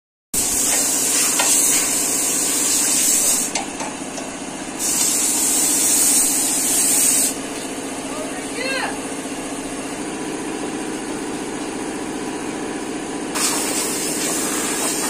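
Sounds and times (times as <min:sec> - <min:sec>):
loud hiss: 0:00.4 - 0:03.6, 0:04.8 - 0:07.4, 0:13.4 - 0:15.0
engine idling: 0:00.4 - 0:15.0.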